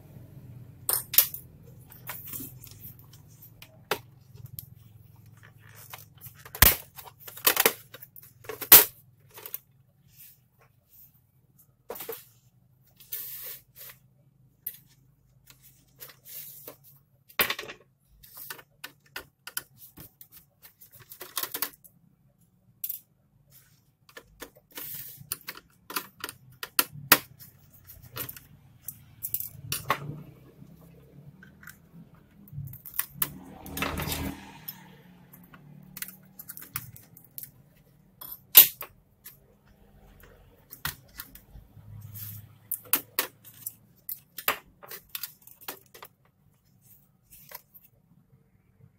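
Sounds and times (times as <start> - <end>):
rustling scrape: 9.3 - 11.2, 11.9 - 14.1, 14.8 - 17.0, 24.7 - 25.3, 41.8 - 42.7.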